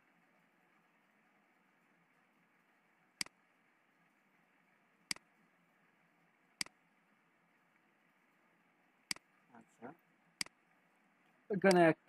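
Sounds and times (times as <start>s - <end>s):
faint steady hiss: 0.0s - 12.0s
computer mouse clicks: 11.6s - 11.9s.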